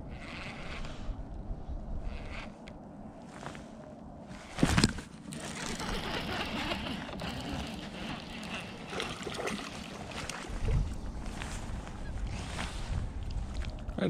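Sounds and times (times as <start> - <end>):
fishing reel whirring with ticks: 0.0 - 1.2, 1.9 - 2.8, 5.3 - 10.5.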